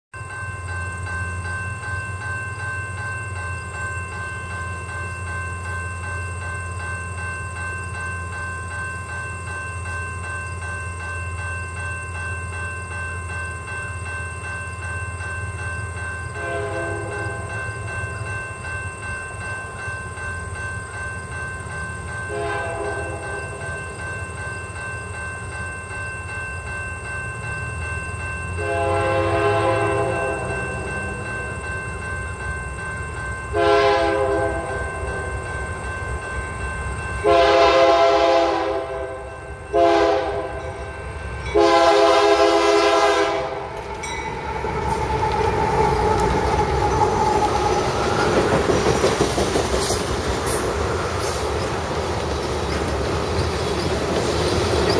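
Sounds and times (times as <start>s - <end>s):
locomotive air horn blasts: 16.4s - 17.5s, 22.3s - 23.6s, 28.6s - 30.6s, 33.5s - 34.8s, 37.2s - 40.6s, 41.5s - 43.7s.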